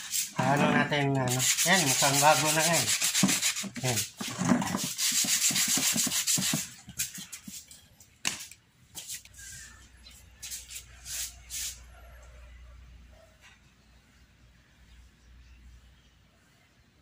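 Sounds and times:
sandpaper rubbing on plastic: 0.0 - 7.7.

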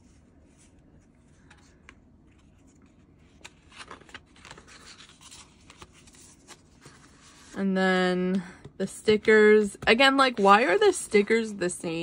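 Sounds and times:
paper and card rustling: 0.1 - 7.6.

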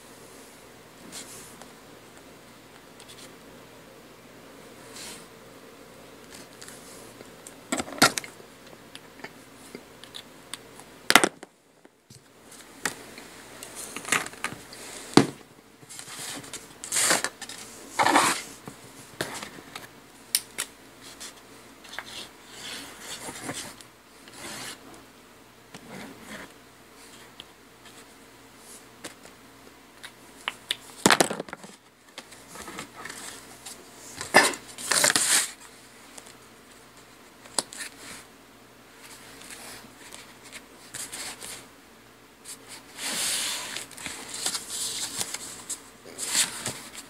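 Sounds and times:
cardstock rustling scrapes: 15.9 - 18.6, 21.0 - 24.8, 42.5 - 47.0.

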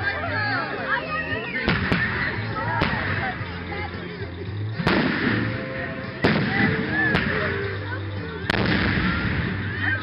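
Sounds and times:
firework booms with echo: 1.7 - 3.2, 4.8 - 7.6, 8.5 - 9.7.

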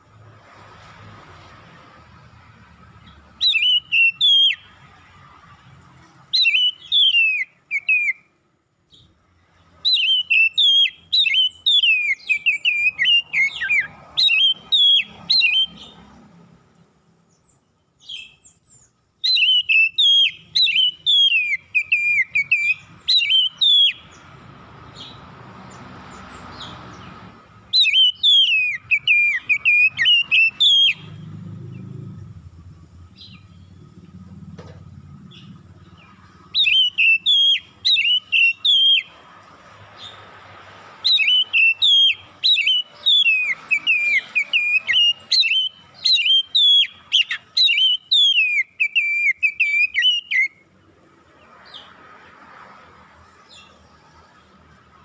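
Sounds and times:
bird singing whistled phrases: 3.4 - 4.7, 6.3 - 8.3, 9.8 - 16.0, 18.0 - 24.2, 27.7 - 31.2, 35.3 - 39.2, 41.0 - 50.6.

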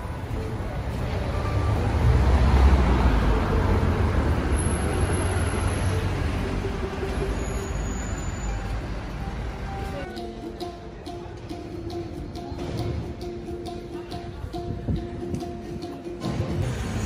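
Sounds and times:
large vehicle passing: 0.4 - 9.8, 16.4 - 17.0
background music: 8.8 - 17.0.

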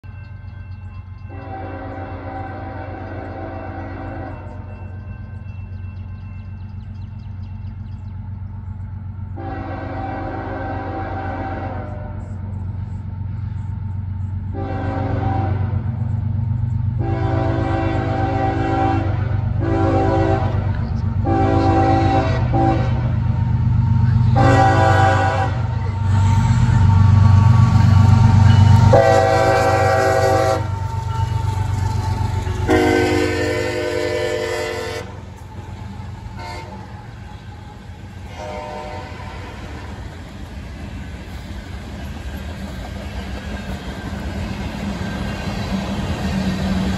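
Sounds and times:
diesel locomotive rumble: 0.0 - 46.9
train horn blasts: 1.2 - 4.9, 9.3 - 12.5, 14.5 - 16.0, 17.0 - 23.2, 24.0 - 40.0
freight cars rolling: 16.0 - 46.9.

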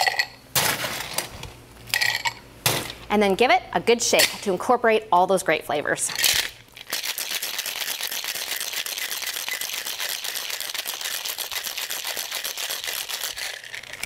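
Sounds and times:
ice rattling in cocktail shaker: 6.1 - 14.0.

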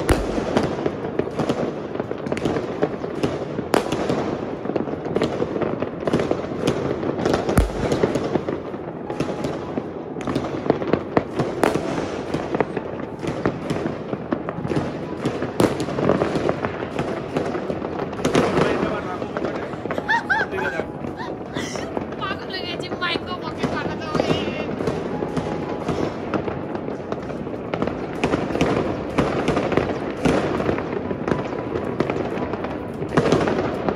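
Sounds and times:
fireworks bangs and crackles: 0.0 - 33.9
deep firework boom: 6.2 - 13.8.

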